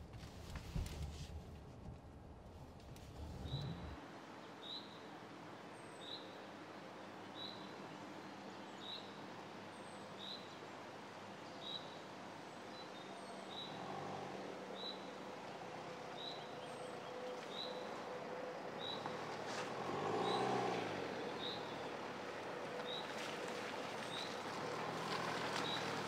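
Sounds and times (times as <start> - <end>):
car engine hum: 0.3 - 4.1, 13.5 - 26.0.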